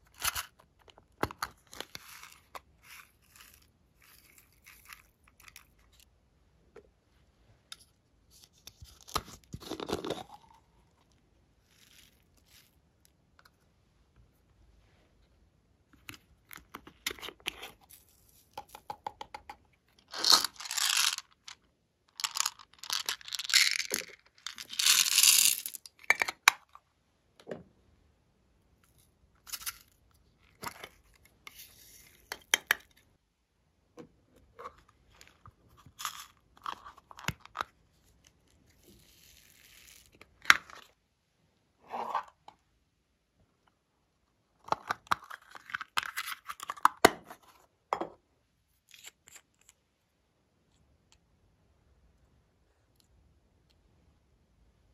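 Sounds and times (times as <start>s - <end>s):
wrapper tearing and rustling: 20.1s - 21.3s.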